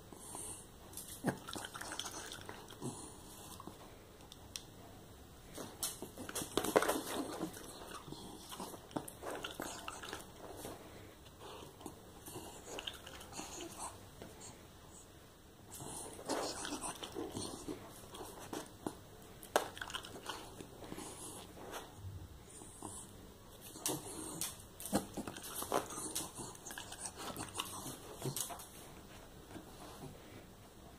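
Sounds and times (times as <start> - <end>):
dog chewing: 6.0 - 14.0, 15.7 - 21.5, 23.6 - 28.9.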